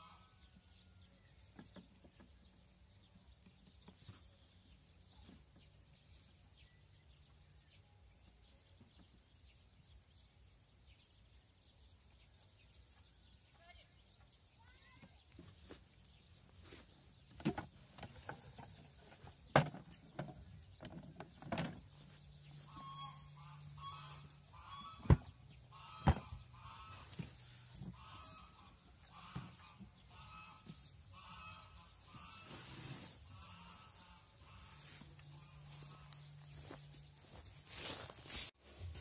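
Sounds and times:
wooden knocks and clatter: 17.3s - 22.1s
bird calling: 20.9s - 38.5s.

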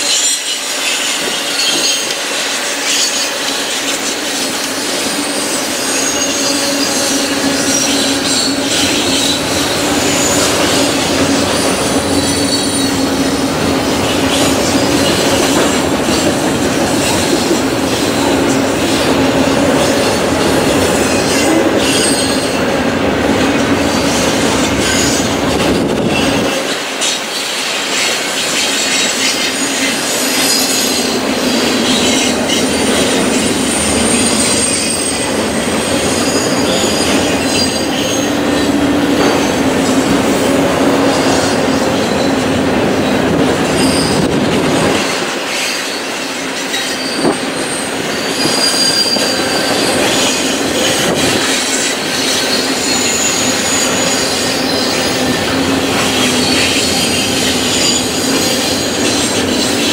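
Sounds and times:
high squealing tones: 0.0s - 15.8s, 45.6s - 59.9s
freight train rolling past: 0.0s - 59.9s.

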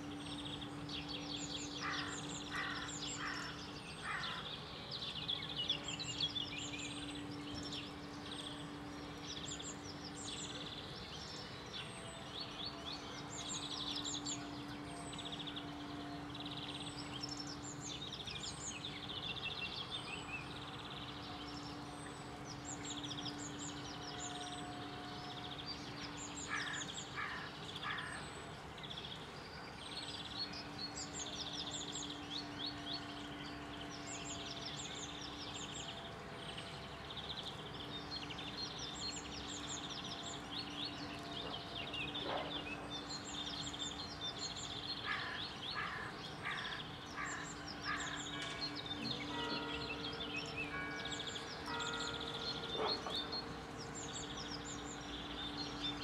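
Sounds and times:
small birds chirping and singing: 0.0s - 56.0s.

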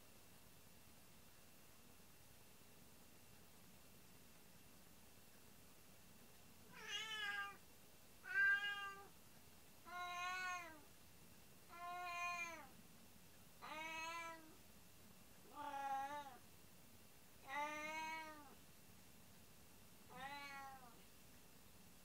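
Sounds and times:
cat meowing: 6.7s - 7.6s, 8.2s - 9.1s, 9.9s - 10.8s, 11.7s - 12.7s, 13.6s - 14.5s, 15.5s - 16.4s, 17.4s - 18.6s, 20.1s - 21.0s.

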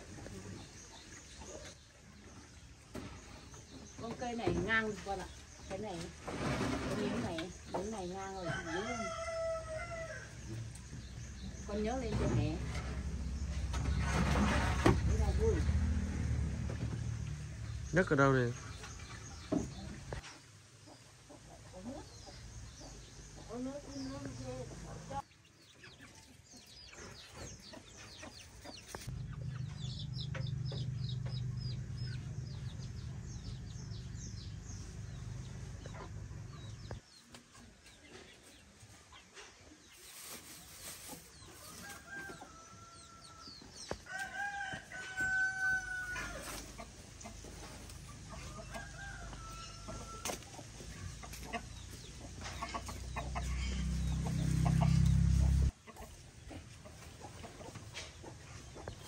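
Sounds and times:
chickens clucking: 0.0s - 59.0s
rooster crowing: 8.4s - 10.4s, 44.1s - 46.6s
low rumble: 10.7s - 17.9s, 29.0s - 37.0s.

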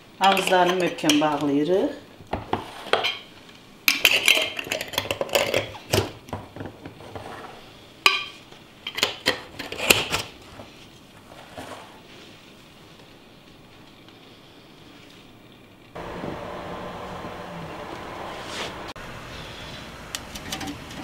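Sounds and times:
metal lids screwed onto glass jars: 4.0s - 5.8s.

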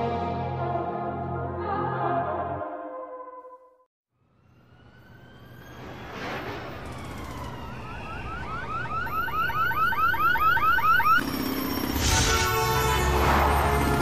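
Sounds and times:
electronic siren yelp: 4.2s - 14.0s.

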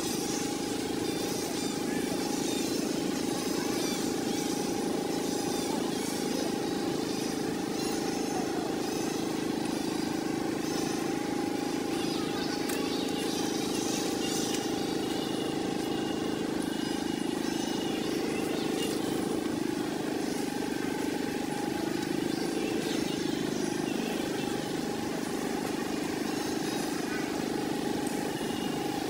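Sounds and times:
faint steady hum: 0.0s - 29.0s
steady mechanical drone: 0.0s - 29.0s.

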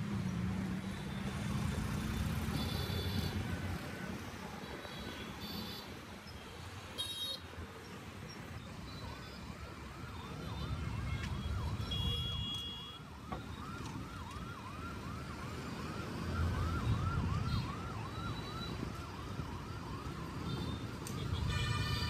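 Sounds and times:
road traffic rumble: 0.0s - 22.0s
siren yelping: 8.5s - 22.0s.

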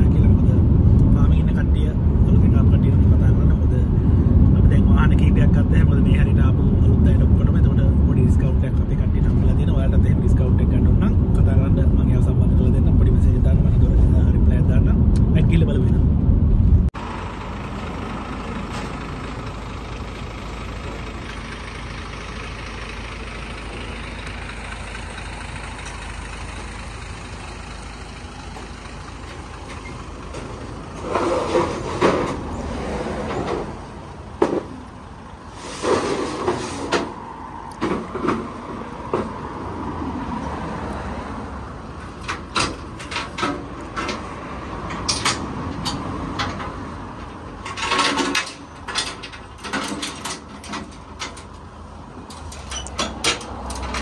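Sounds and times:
truck engine idling: 16.9s - 32.6s
clanks and knocks: 28.6s - 32.5s, 34.4s - 34.8s, 37.8s - 39.4s, 42.2s - 54.0s.

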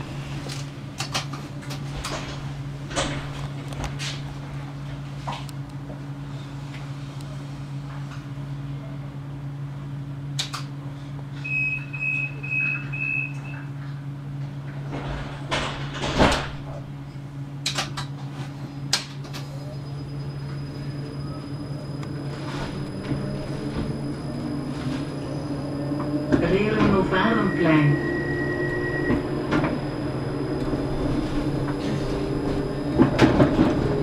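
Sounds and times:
tram equipment humming: 0.0s - 34.0s
short high warning beeps: 11.4s - 13.6s.

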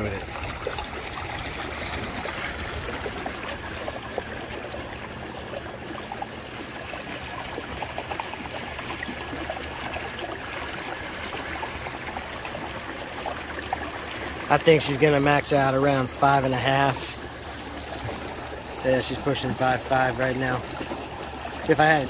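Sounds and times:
water splashing along a kayak hull: 0.0s - 22.0s.

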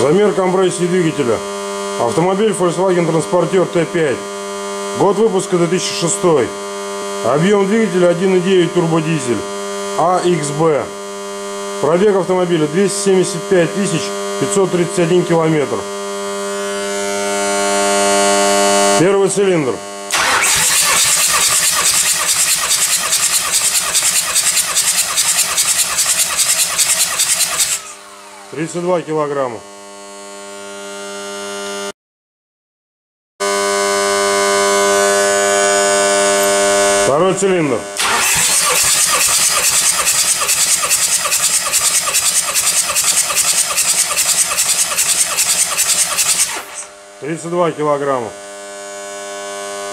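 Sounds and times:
starter motor cranking engine: 20.1s - 28.8s, 38.0s - 47.0s.

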